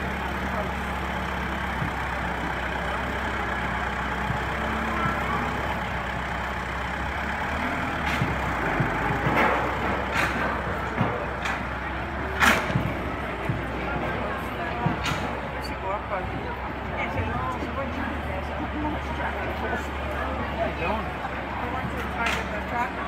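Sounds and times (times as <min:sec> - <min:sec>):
tractor engine running: 0:00.0 - 0:23.0
sharp knocks and clatters: 0:07.9 - 0:15.7.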